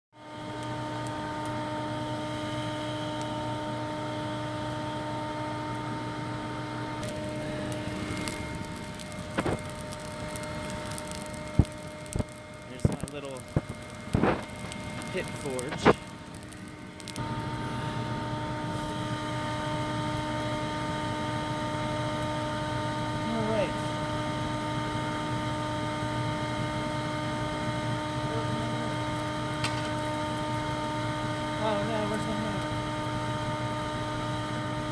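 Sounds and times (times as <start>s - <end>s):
blower whirring hum: 0.2s - 34.9s
shop vac motor whining: 0.2s - 34.9s
sharp knocks and crackles: 7.0s - 17.3s, 29.2s - 30.8s.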